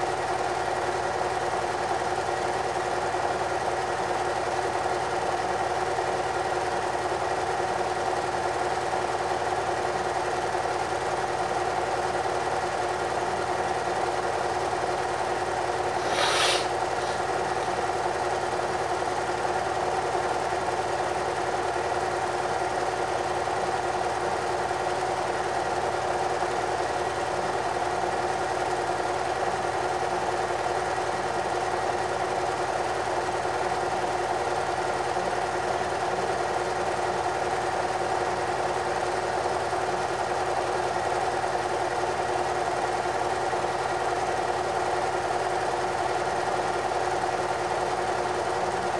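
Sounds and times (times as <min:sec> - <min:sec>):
film projector hum and whirr: 0:00.0 - 0:48.9
short burst of noise: 0:15.9 - 0:17.3.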